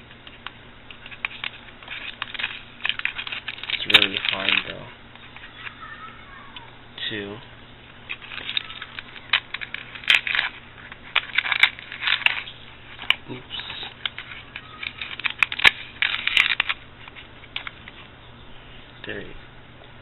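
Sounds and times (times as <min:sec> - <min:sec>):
plastic packaging crinkling: 0:00.3 - 0:05.9, 0:08.0 - 0:18.1.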